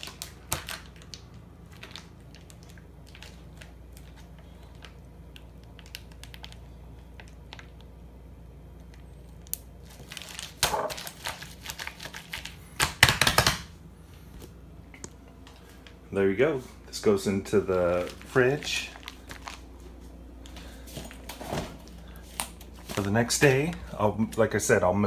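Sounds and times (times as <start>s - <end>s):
plastic bag crinkling: 0.0s - 7.9s, 8.8s - 13.4s, 17.0s - 24.0s.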